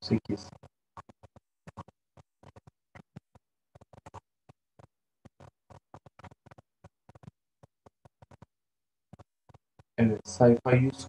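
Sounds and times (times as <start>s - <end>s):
book pages rustling and clicking: 0.3s - 10.0s.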